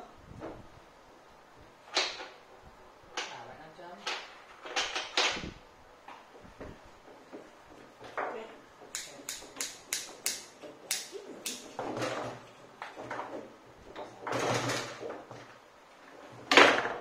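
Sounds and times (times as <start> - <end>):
foosball ball clacking: 1.9 - 2.4.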